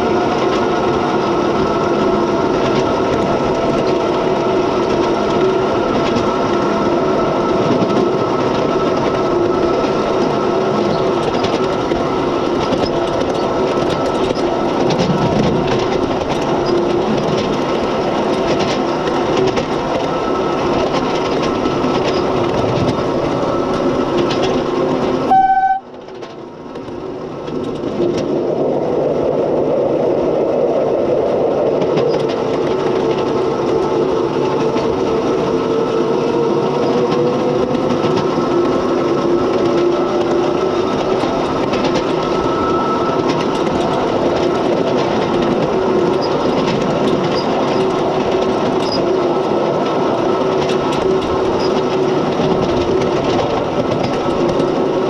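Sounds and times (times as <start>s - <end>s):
miniature locomotive drive whine: 0.0s - 55.0s
wheels clicking over rail joints: 0.0s - 55.0s
short horn toot: 25.3s - 26.0s.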